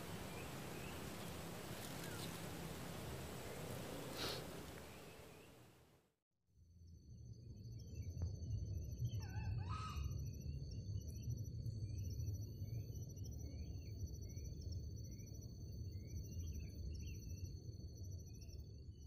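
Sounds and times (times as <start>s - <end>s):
warbling bird call: 0.0s - 5.6s.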